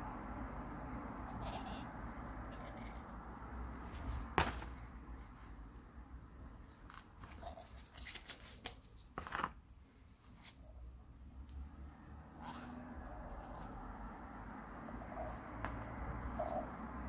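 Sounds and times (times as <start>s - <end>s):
cloth rustling on cardboard: 0.8s - 11.6s.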